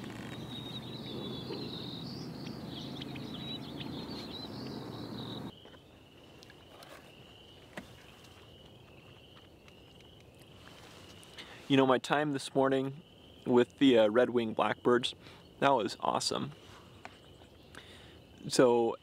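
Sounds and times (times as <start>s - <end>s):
many birds chirping: 0.0s - 5.5s.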